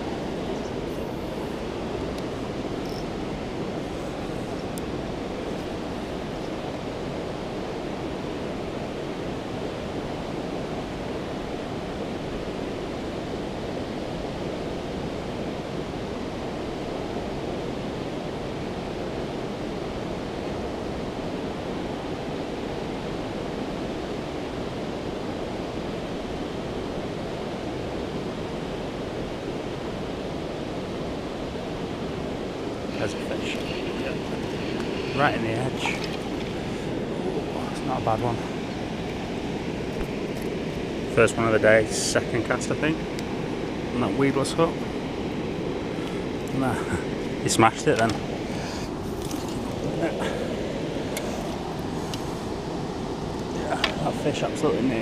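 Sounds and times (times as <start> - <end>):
water pouring over weir: 33.2 - 37.0.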